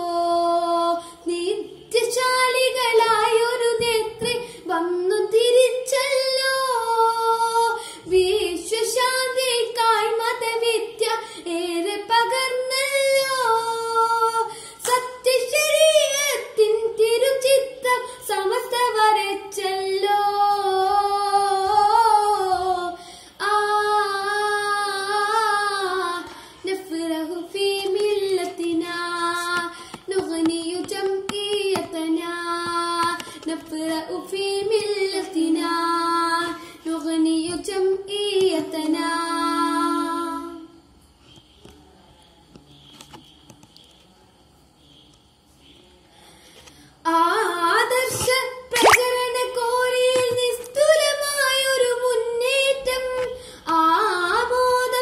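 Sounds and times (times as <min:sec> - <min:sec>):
boy singing unaccompanied: 0:00.0 - 0:40.7.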